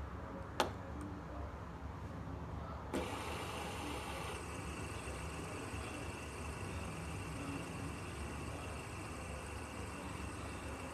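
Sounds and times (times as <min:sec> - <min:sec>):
ball bearings whirring: 0:03.0 - 0:10.9.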